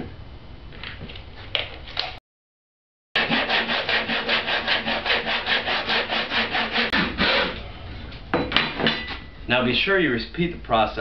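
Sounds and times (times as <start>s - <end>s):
handsaw cutting wood: 3.2s - 7.6s.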